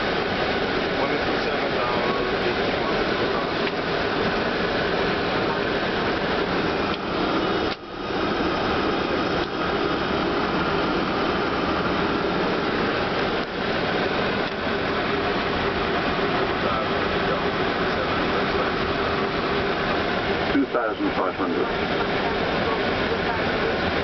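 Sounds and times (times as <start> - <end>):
rushing aircraft cabin noise: 0.0 - 24.0.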